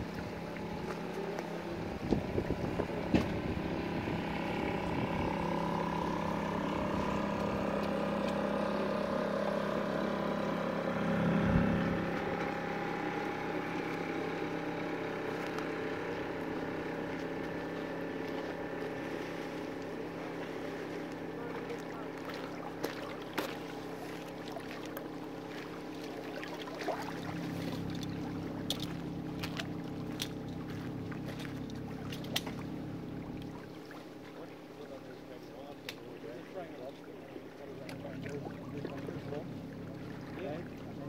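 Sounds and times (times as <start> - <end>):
boat engine droning: 0.0 - 41.0
wind buffeting microphone: 1.7 - 5.8.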